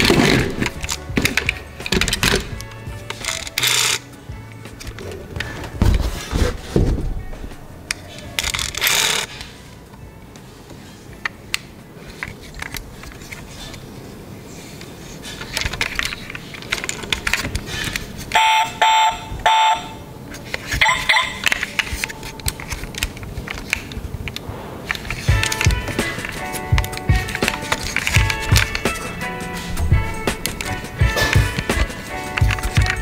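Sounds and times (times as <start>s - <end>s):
toy cars clicking and rattling: 0.0s - 4.1s, 7.9s - 9.5s, 14.6s - 18.4s, 20.3s - 33.0s
electronic double chirp: 18.4s - 20.0s
short electronic beeps: 18.4s - 20.0s.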